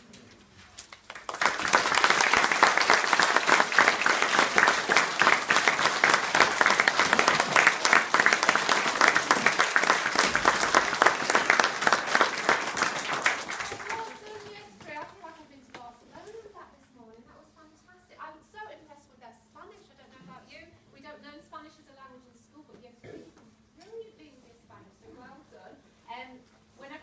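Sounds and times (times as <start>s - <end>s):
children applauding: 0.9s - 14.6s.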